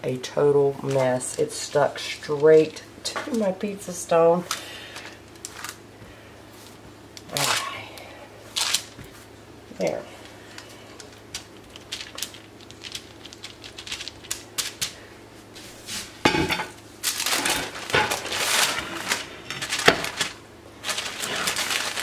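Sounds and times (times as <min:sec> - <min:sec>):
parchment paper rustling: 0:00.7 - 0:02.8, 0:04.4 - 0:05.8, 0:10.0 - 0:16.2, 0:17.0 - 0:22.0.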